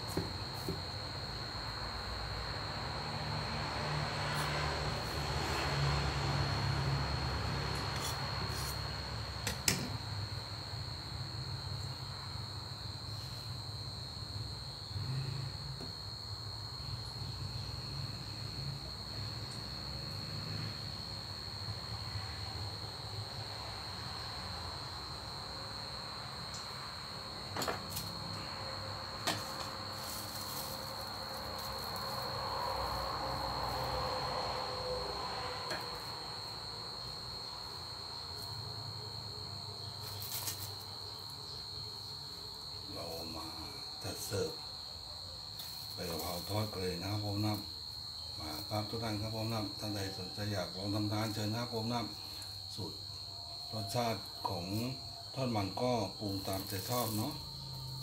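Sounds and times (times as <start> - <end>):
high-pitched insect trill: 0.0 - 58.0
fried leaves rustling: 29.9 - 32.3.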